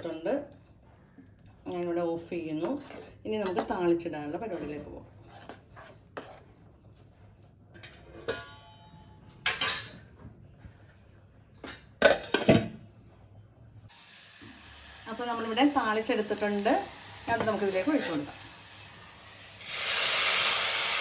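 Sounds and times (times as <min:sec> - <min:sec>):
sizzling in hot oil: 0:13.9 - 0:21.0.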